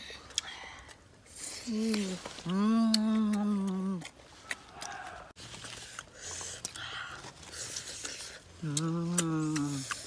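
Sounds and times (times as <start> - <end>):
chewing crunchy fruit: 0.0 - 10.0
boy humming: 1.4 - 4.1, 8.6 - 9.9.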